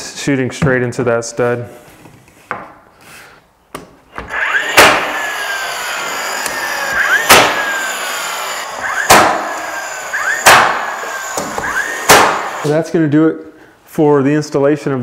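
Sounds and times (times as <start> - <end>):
nailer motor whirring: 4.1 - 12.7
motor whine: 4.2 - 12.7
nailer firing sharp cracks: 4.2 - 12.7.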